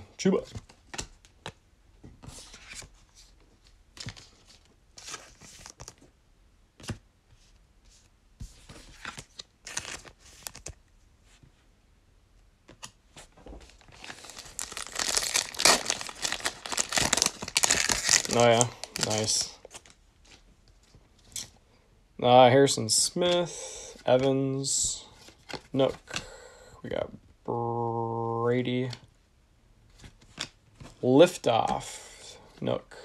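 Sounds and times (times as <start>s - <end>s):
cards and packaging rustling: 2.2s - 6.1s, 6.8s - 10.8s, 12.7s - 21.6s, 23.3s - 26.3s
plastic wrapper crinkling and tearing: 13.7s - 20.0s.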